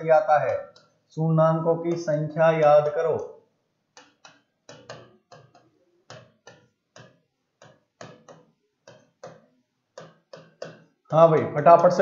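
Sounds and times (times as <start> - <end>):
marker scratching on whiteboard: 4.0 - 11.2.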